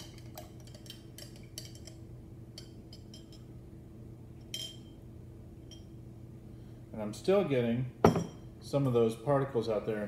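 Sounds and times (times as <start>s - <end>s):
spoon clinking against glass: 2.6s - 3.5s, 4.4s - 5.0s, 5.6s - 5.9s.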